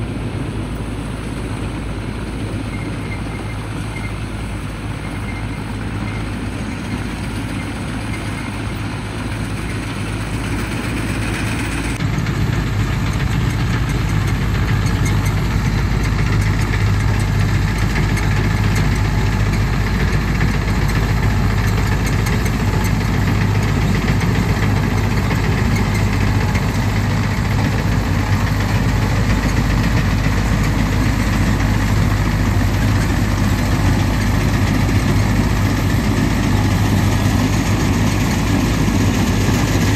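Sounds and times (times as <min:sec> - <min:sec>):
combine harvester engine drone: 0:00.0 - 0:39.9.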